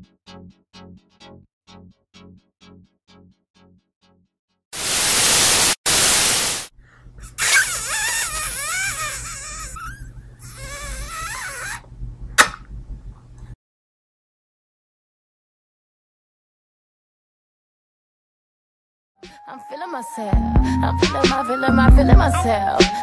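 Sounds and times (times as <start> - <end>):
hiss: 4.8 - 6.7
static-like noise bursts: 4.8 - 6.7.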